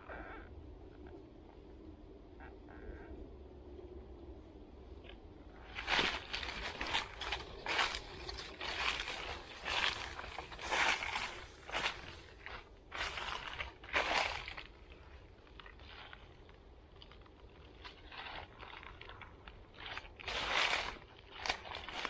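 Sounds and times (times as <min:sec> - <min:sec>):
footsteps crunching through dry leaves: 0:05.6 - 0:16.5, 0:17.1 - 0:22.0.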